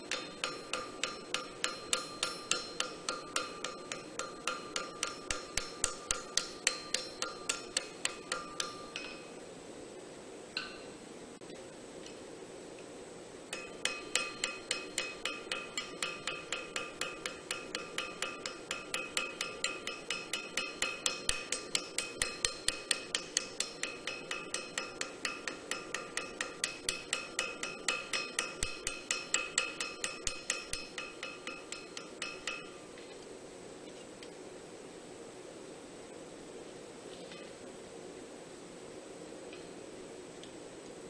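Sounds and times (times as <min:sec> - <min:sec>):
hammer blows ringing on anvil: 0:00.0 - 0:09.4, 0:13.5 - 0:32.9.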